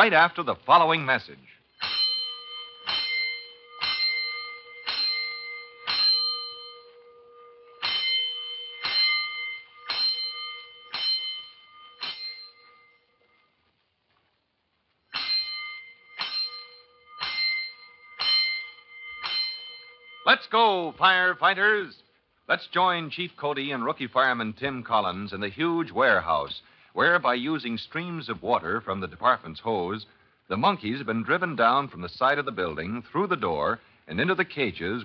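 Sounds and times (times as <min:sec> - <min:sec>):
fire alarm gong ringing: 0:01.7 - 0:13.5, 0:15.1 - 0:21.9.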